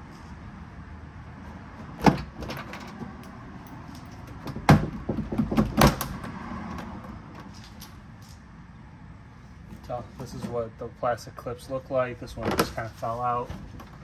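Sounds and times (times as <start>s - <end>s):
trim panel clicks and knocks: 4.3s - 6.2s.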